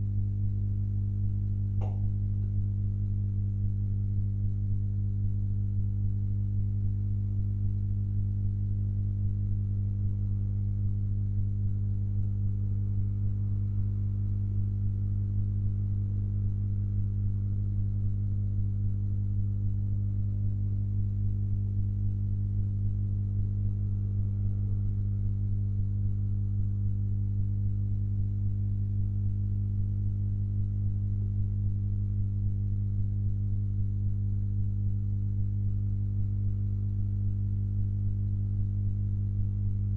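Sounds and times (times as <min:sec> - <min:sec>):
low electrical hum: 0:00.0 - 0:39.9.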